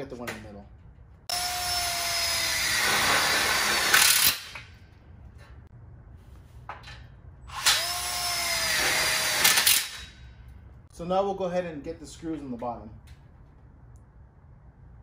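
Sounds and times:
cordless drill driving screws: 1.3s - 4.6s, 7.5s - 10.0s.

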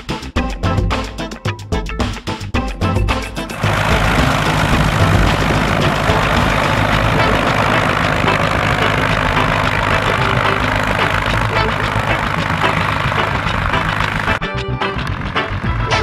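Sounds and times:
piston aircraft engine running: 3.3s - 16.0s
propeller wash rushing: 3.4s - 16.0s.

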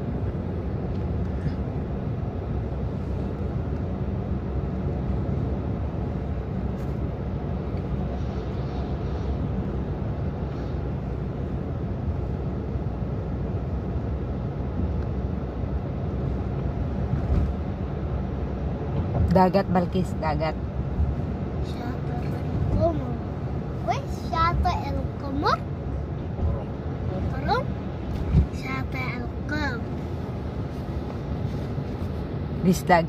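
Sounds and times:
car driving interior rumble: 0.0s - 33.0s.

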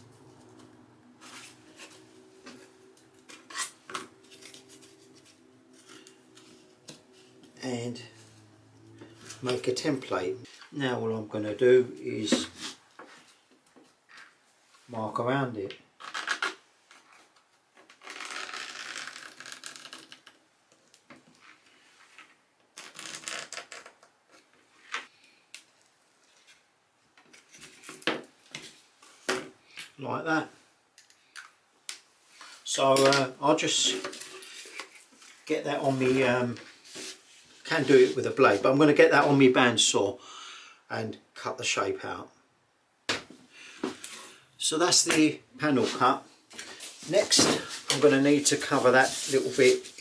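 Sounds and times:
cardboard scraping and rustling: 46.6s - 50.0s.

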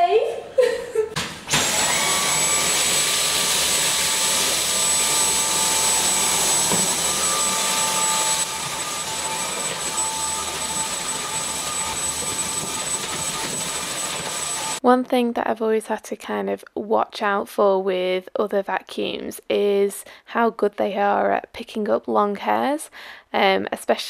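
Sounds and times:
vacuum cleaner motor whining: 1.5s - 14.8s.

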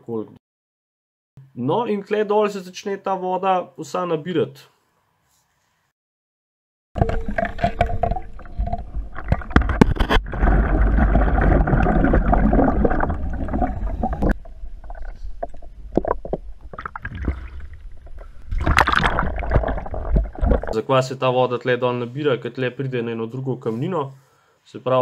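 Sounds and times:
diving gear knocks and clicks: 7.0s - 14.5s, 18.0s - 20.8s
underwater breathing bubbles gurgling: 7.0s - 20.8s.

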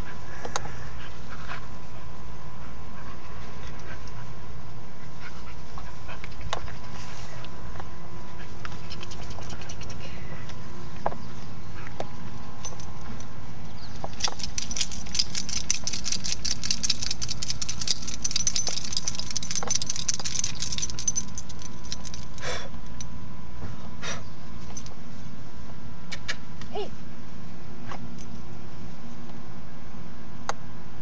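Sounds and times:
dog collar jingling: 12.6s - 22.5s.

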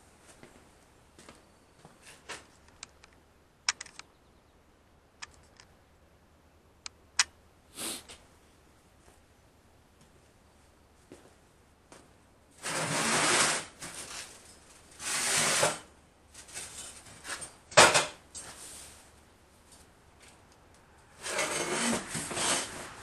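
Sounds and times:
steel scraping on steel: 15.0s - 15.8s, 21.2s - 23.0s.

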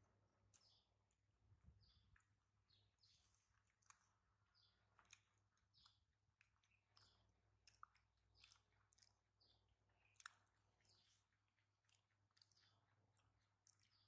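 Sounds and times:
faint clicks and crackles: 3.0s - 14.0s.

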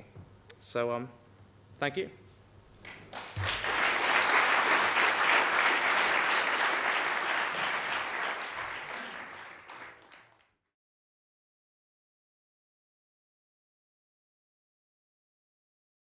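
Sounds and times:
audience applauding: 2.8s - 10.6s.

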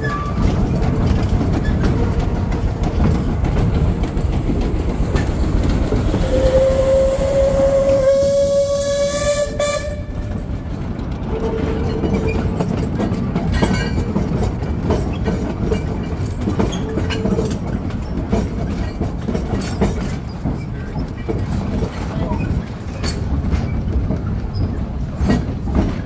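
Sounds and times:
steam locomotive rumble: 0.0s - 26.0s
wheels clicking over rail joints: 0.0s - 26.0s
steam whistle: 6.1s - 10.2s.

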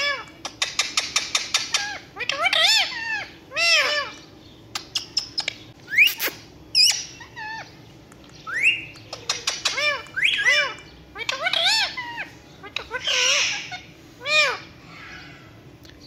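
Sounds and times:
parakeets squawking: 0.0s - 15.6s
parakeet clicks: 0.2s - 1.8s, 8.0s - 11.3s.

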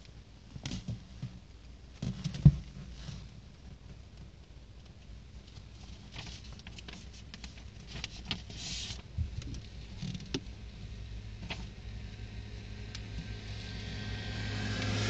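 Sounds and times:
faint clicks and rustles: 0.0s - 12.2s
car interior rumble: 5.8s - 15.0s.

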